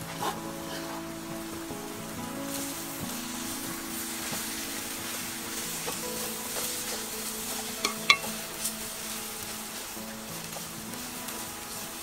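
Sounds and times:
filling sizzling: 0:00.0 - 0:12.0
spatula knocking against pot: 0:07.9 - 0:08.3.

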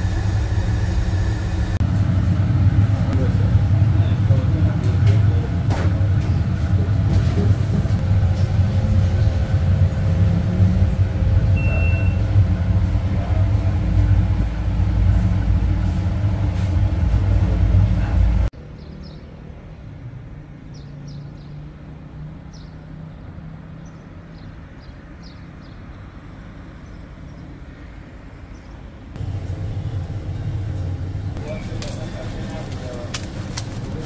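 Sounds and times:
loud low rumble: 0:00.0 - 0:18.5, 0:29.2 - 0:33.1
distant traffic hum: 0:00.0 - 0:34.0
faint high chirps: 0:11.6 - 0:12.3.

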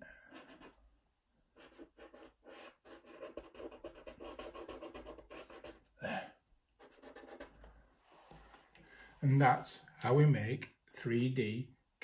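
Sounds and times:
marker scratching on paper: 0:00.3 - 0:00.8, 0:01.6 - 0:05.9, 0:06.8 - 0:07.7.

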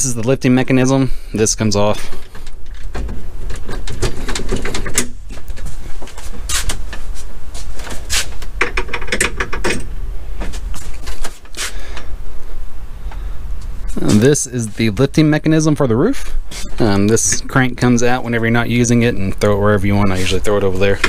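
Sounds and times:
steady low rumble: 0:00.0 - 0:21.0
metal clanks and rattles: 0:02.0 - 0:05.7, 0:08.6 - 0:10.6.

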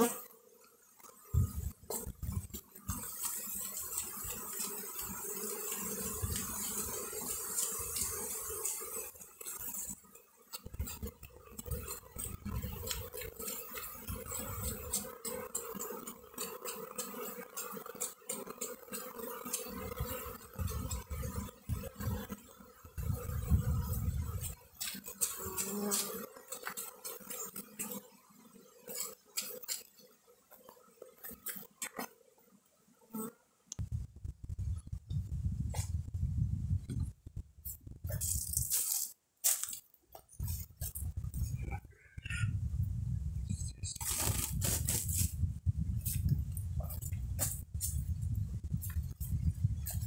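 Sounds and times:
honeybees buzzing: 0:00.0 - 0:35.1, 0:43.7 - 0:45.5
low thumps and rumbles: 0:33.8 - 0:38.2.

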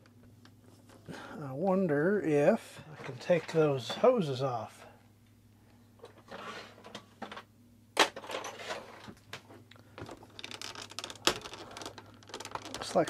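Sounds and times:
plastic parts clicking and rattling: 0:10.0 - 0:13.0.

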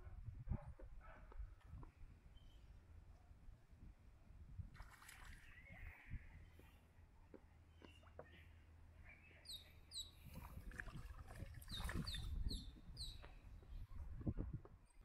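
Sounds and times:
bird chirping: 0:11.7 - 0:13.9.

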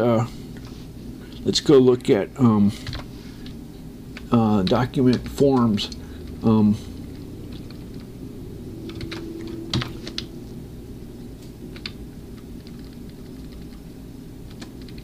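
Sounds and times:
steady low hum: 0:00.0 - 0:15.0
keyboard keys clicking: 0:12.6 - 0:13.8, 0:14.5 - 0:15.0.

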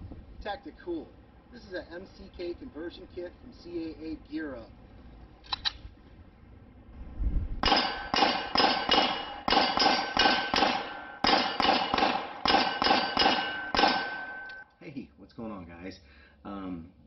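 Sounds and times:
pistol shots: 0:07.6 - 0:14.6
steel targets ringing: 0:07.6 - 0:14.6.

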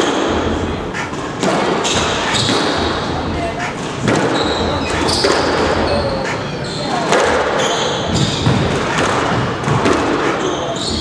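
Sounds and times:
racket hitting squash ball: 0:00.0 - 0:10.9
shoes squeaking on court floor: 0:01.8 - 0:02.9, 0:03.6 - 0:11.0.

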